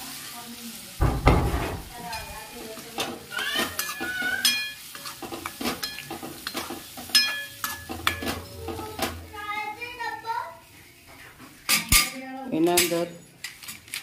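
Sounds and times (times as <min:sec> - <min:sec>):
liquid splash and sizzle: 0:00.0 - 0:12.8
metal spoon scraping steel pan: 0:02.1 - 0:09.4.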